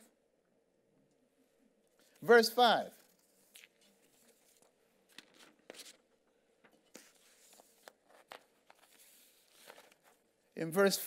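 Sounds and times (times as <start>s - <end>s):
paper sheets rustling: 3.8s - 6.1s, 6.8s - 10.2s.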